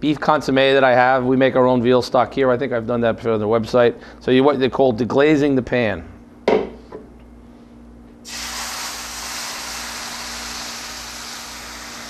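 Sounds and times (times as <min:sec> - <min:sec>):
faint steady hum: 0:00.0 - 0:12.0
pan sizzling and hissing: 0:08.2 - 0:12.0.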